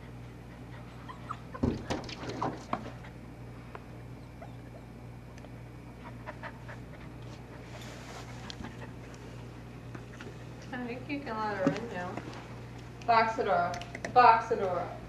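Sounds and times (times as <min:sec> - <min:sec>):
puppy whimpering: 0:00.6 - 0:01.6, 0:04.2 - 0:05.0.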